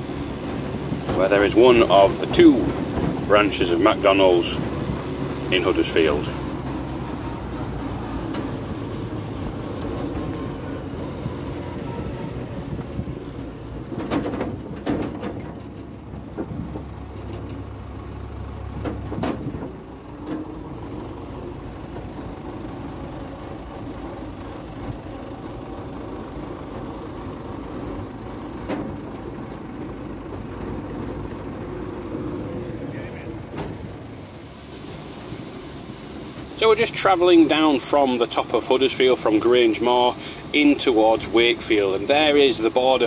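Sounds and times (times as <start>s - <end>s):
tractor diesel engine running: 0.0s - 43.0s
sharp knocks and rattles: 0.1s - 12.0s, 12.7s - 21.2s.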